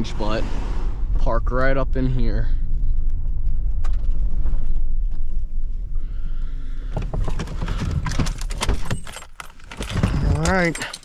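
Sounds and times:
engine and tyre rumble: 0.0 - 11.0
clicks and rattles of controls and keys: 6.9 - 11.0.

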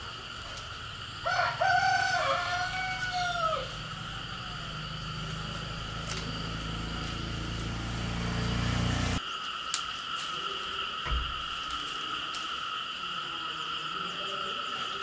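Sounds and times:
low engine-like hum: 0.0 - 9.2
insects chirring: 0.0 - 15.0.

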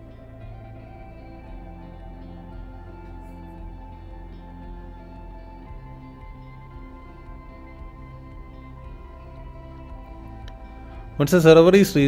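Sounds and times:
soft background music: 0.0 - 12.0.

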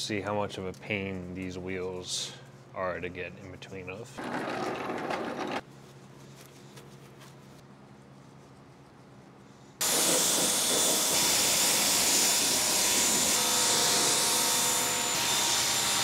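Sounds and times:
pressure washer spraying water: 9.8 - 13.4.

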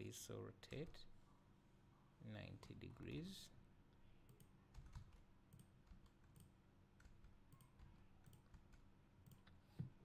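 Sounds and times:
keyboard and mouse clicks: 4.3 - 9.6.

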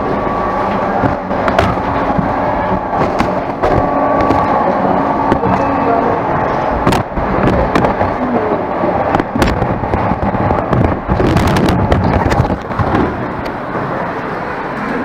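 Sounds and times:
sharp clicks and knocks: 0.7 - 4.6, 6.4 - 8.2.

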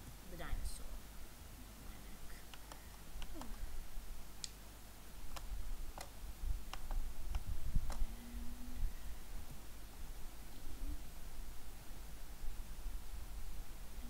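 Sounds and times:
faint low rumble: 0.0 - 14.0
steady low hum: 0.0 - 14.0
mouse and keyboard clicks: 6.7 - 8.1.

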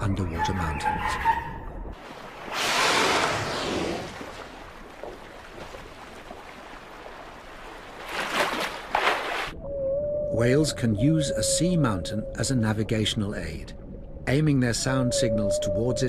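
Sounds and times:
rushing water bursts: 2.0 - 9.6
sea waves washing: 2.0 - 9.6.

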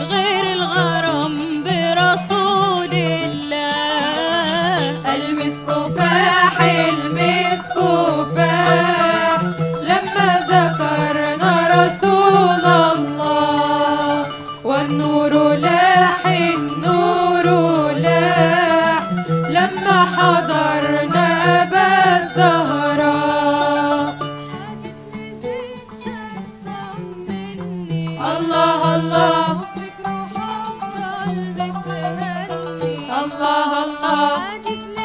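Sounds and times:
instrumental accompaniment: 0.0 - 35.0
women's group singing: 0.0 - 35.0.

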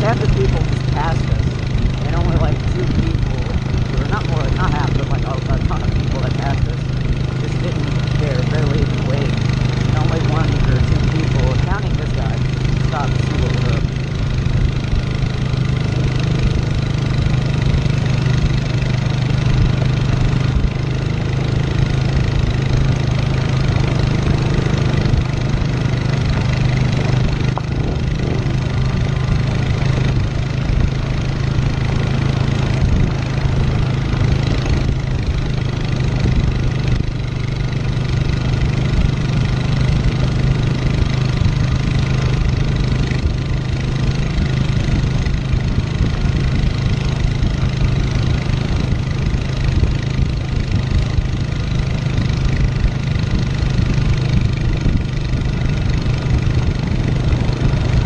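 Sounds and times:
atv engine running: 0.0 - 58.0
tyres on gravel road: 0.0 - 58.0
wind noise: 0.0 - 58.0.

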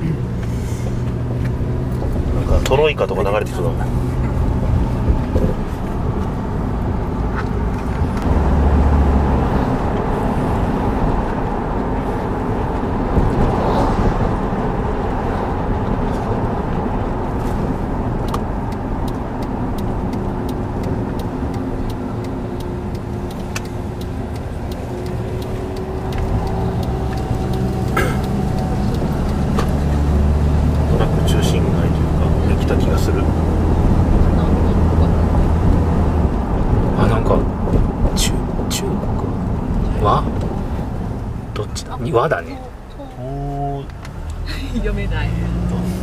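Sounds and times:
car engine hum: 0.0 - 46.0
road noise: 0.0 - 46.0.

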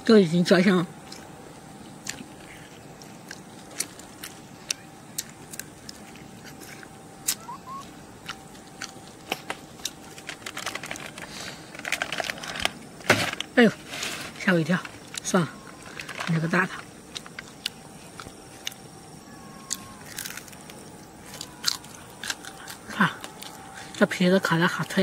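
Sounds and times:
person chewing crunchy food: 1.0 - 12.4, 16.9 - 19.0, 19.6 - 24.0.

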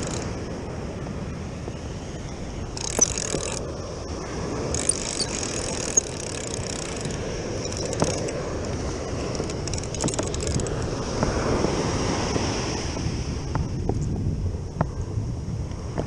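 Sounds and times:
fishing reel gears whirring: 0.0 - 0.4, 2.7 - 3.7, 4.6 - 10.9
reel clicks: 0.0 - 0.4, 2.7 - 3.7, 4.6 - 11.4
wind: 0.0 - 16.0
surf: 7.2 - 16.0.

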